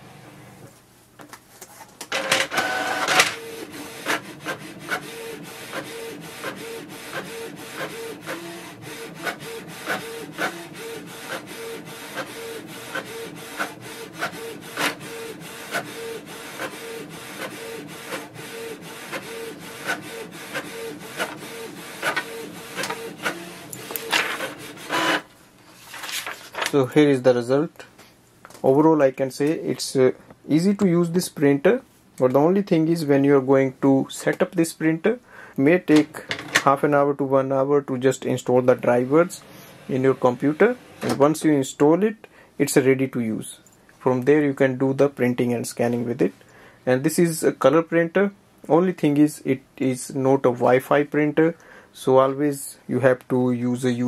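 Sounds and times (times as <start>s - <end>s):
printer pulling paper in: 2.1s - 25.3s
printer head clicking and whirring: 2.2s - 25.2s.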